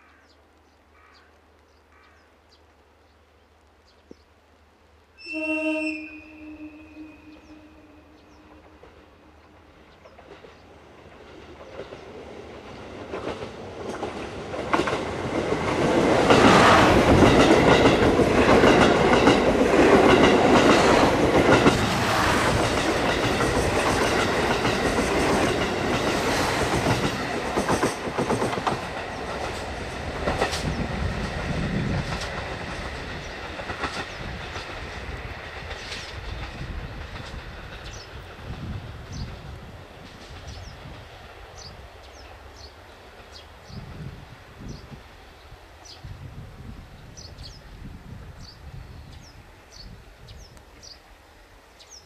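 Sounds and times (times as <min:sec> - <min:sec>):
diesel train passing at speed: 0:05.2 - 0:52.0
wheels clacking over rail joints: 0:09.9 - 0:39.3.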